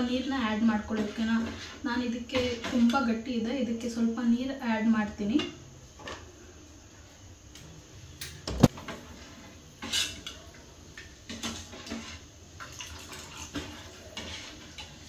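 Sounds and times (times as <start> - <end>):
ladle scraping steel pot: 0.9 - 1.8, 8.7 - 10.5, 11.3 - 15.0
water pouring: 12.6 - 13.8.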